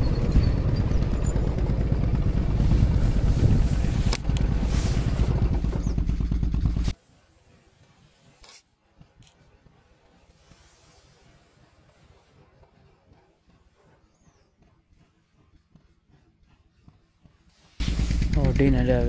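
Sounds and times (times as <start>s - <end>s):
wind buffeting microphone: 0.0s - 6.2s.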